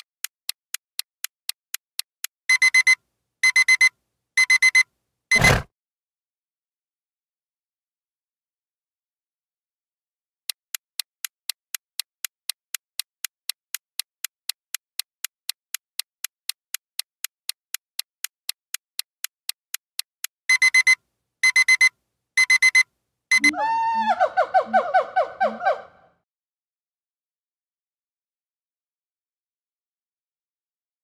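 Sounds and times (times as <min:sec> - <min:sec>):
clock ticking: 0:00.0 - 0:05.6, 0:10.5 - 0:23.6
alarm clock beeping: 0:02.5 - 0:05.6, 0:20.5 - 0:23.6.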